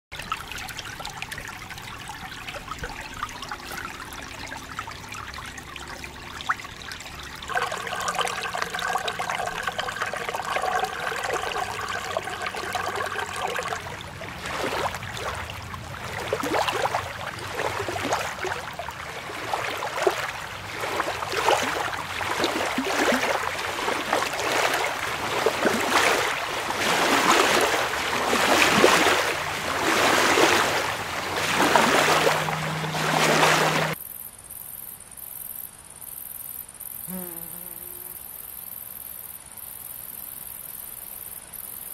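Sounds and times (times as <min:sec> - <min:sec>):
small waves lapping against stones: 0:07.5 - 0:34.0.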